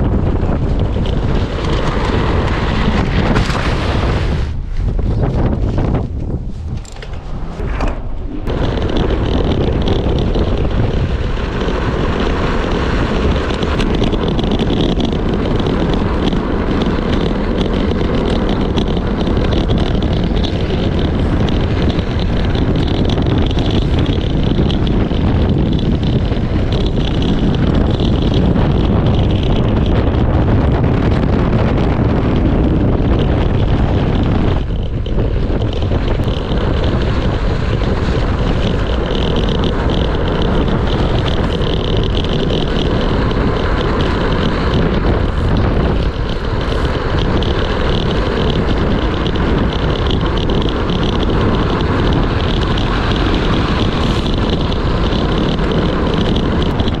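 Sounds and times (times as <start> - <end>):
wheels rolling on dirt: 0.0 - 57.0
wind buffeting microphone: 0.0 - 57.0.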